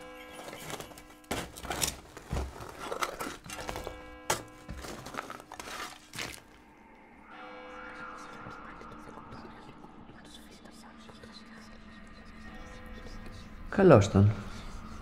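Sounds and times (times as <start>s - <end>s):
rustling scrapes: 0.0s - 6.6s.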